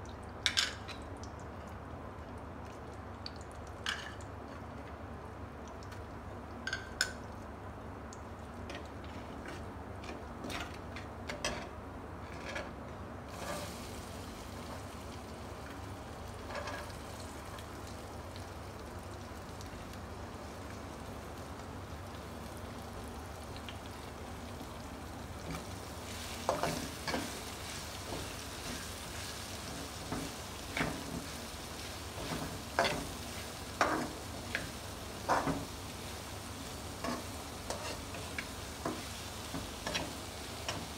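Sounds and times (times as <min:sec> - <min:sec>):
vegetables sizzling in a wok: 0:09.0 - 0:40.9
spatula scraping and knocking pan: 0:25.5 - 0:31.4, 0:32.2 - 0:35.7, 0:37.0 - 0:40.9.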